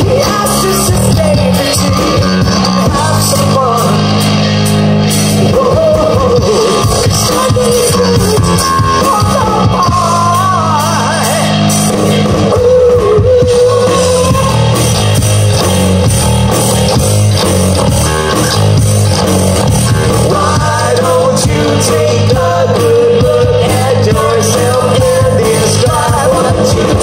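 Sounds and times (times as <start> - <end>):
person singing: 0.0 - 4.2, 5.4 - 11.7, 12.4 - 15.0, 19.9 - 27.0
bass guitar: 0.0 - 27.0
distorted electric guitars: 0.0 - 27.0
drum kit: 0.0 - 27.0.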